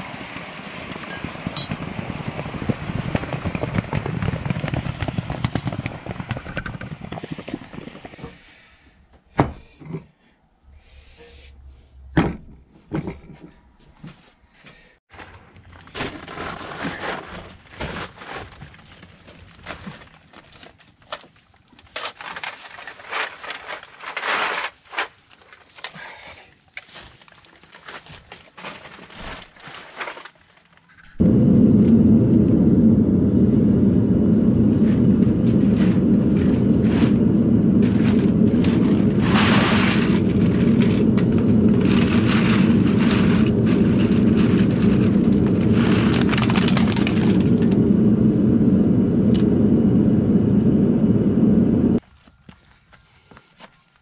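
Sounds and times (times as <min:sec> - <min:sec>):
plastic bags of cans rustling: 0:15.1 - 0:30.9, 0:37.8 - 0:47.8
loud steady roar: 0:31.2 - 0:52.0.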